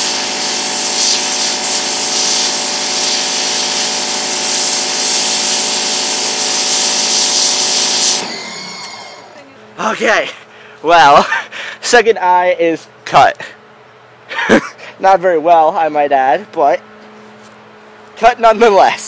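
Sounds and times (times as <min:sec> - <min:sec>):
pressure washer jet hissing: 0:00.0 - 0:09.4
pressure washer motor and pump: 0:00.0 - 0:12.0, 0:14.4 - 0:19.0.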